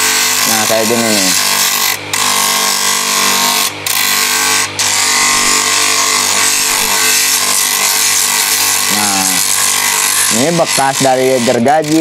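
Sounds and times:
grinder grinding wood: 0.0 - 12.0.

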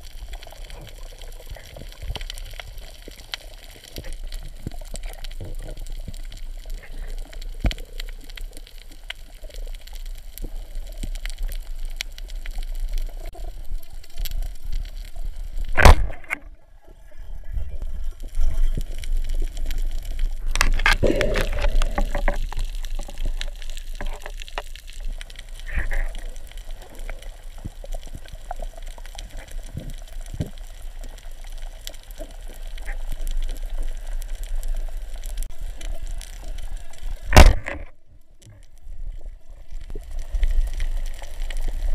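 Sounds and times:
underwater water rush: 0.0 - 41.9
speargun firing: 15.8 - 16.2.

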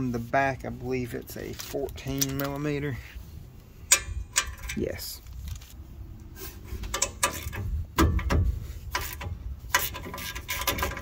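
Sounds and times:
sharp metal clicks and knocks: 3.8 - 5.0, 6.8 - 11.0.

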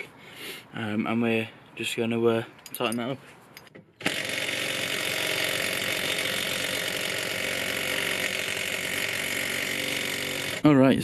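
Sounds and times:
power tool whirring: 4.0 - 10.6.

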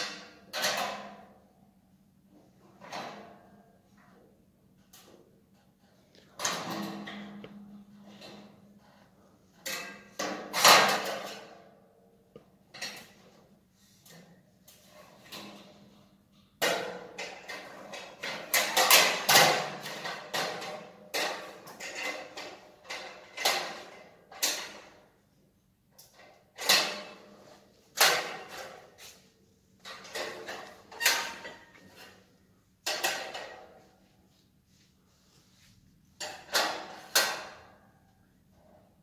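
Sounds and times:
metal knocks and clanks: 29.8 - 34.0.

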